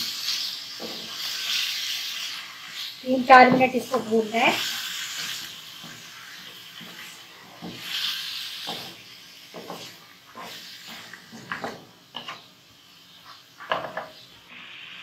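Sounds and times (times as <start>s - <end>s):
chicken sizzling in hot oil: 0.0s - 15.0s
spatula scraping and knocking pan: 0.7s - 2.0s, 2.7s - 12.5s.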